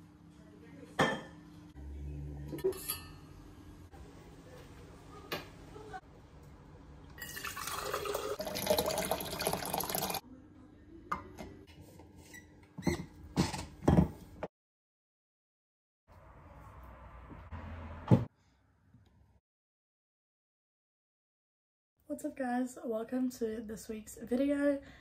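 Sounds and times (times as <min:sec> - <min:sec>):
water pouring into metal tumbler: 0:07.2 - 0:10.2.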